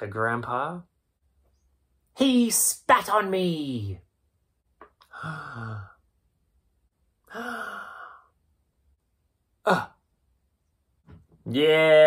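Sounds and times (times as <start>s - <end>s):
man sighing: 5.0s - 6.0s, 7.2s - 8.4s, 9.6s - 10.0s.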